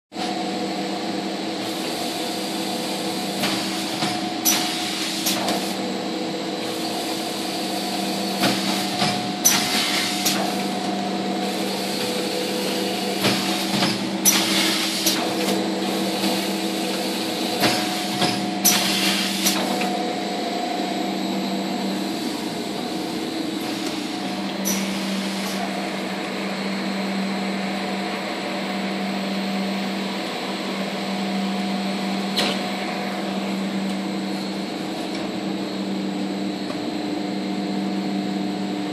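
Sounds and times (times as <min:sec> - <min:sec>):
packaging machine motor hum: 0:00.2 - 0:38.9.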